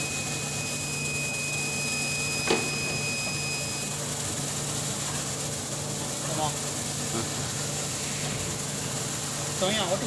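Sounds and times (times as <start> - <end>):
thin high whine: 0.0 - 4.0
machinery hum and hiss: 0.0 - 10.0.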